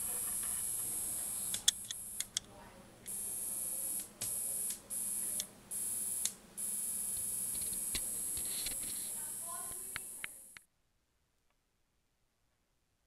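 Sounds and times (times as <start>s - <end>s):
steady high hiss: 0.0s - 2.4s, 3.1s - 10.6s.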